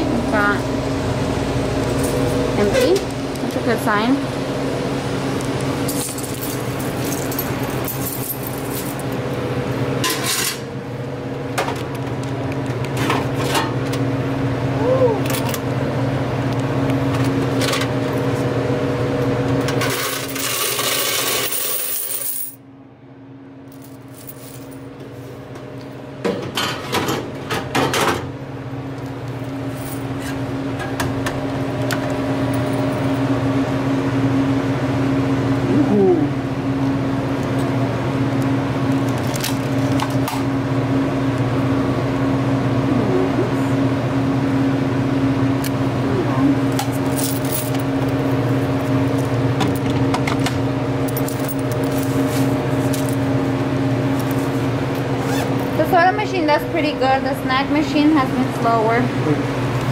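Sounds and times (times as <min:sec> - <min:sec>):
steady low hum: 0:00.0 - 0:59.9
coins clinking and rattling: 0:05.9 - 0:09.1, 0:19.8 - 0:22.6, 0:23.7 - 0:24.8, 0:47.0 - 0:47.9, 0:51.1 - 0:53.2.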